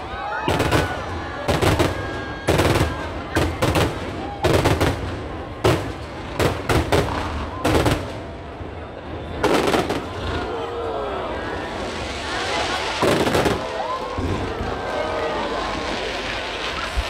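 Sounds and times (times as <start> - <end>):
fireworks bursting with sharp bangs: 0.0 - 10.6, 11.5 - 17.0.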